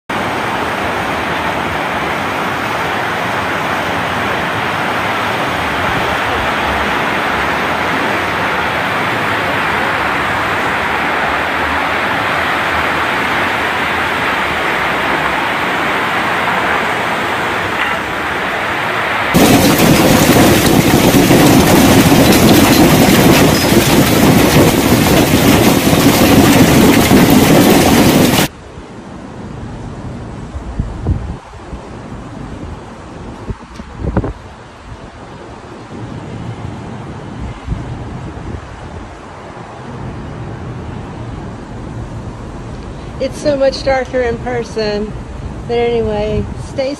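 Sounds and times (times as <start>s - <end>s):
floodwater rushing: 0.1s - 28.5s
hail pelting cars and pavement: 19.3s - 28.5s.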